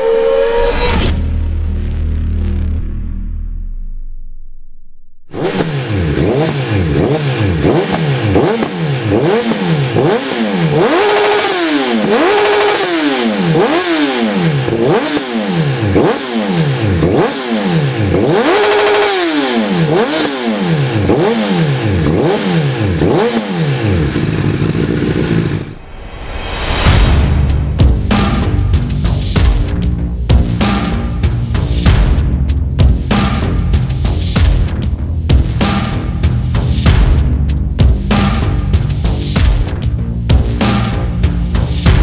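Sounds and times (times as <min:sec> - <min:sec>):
motorcycle engine revving: 0:05.3 - 0:25.8, 0:27.8 - 0:42.0.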